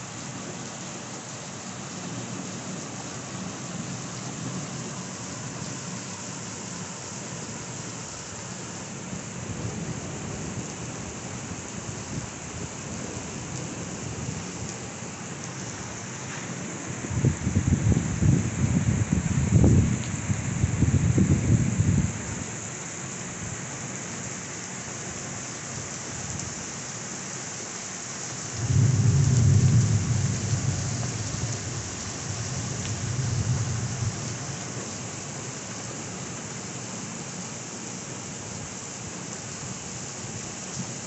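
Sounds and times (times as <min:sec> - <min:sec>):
heavy rain on pavement: 0:00.0 - 0:41.0
rolling thunder: 0:28.6 - 0:34.3.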